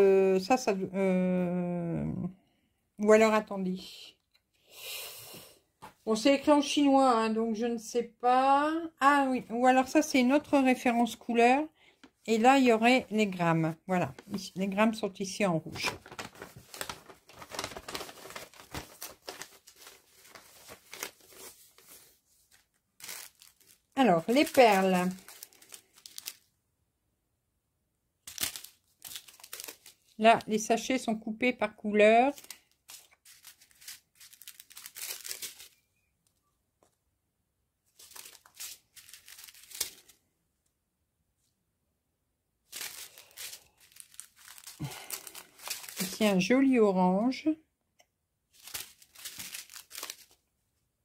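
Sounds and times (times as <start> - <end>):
plastic wrapping crinkling: 15.6 - 26.5, 28.2 - 30.5, 32.3 - 36.0, 37.9 - 40.2, 42.7 - 46.7, 48.5 - 50.5.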